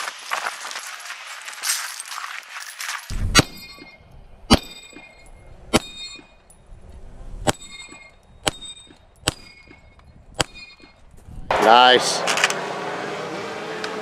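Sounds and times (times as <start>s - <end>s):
steel plate ringing when hit: 3.4s - 6.4s, 7.5s - 11.0s.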